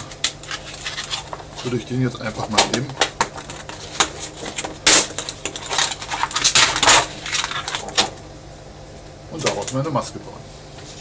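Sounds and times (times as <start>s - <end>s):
plastic sheet and paper crackling: 0.0s - 8.2s.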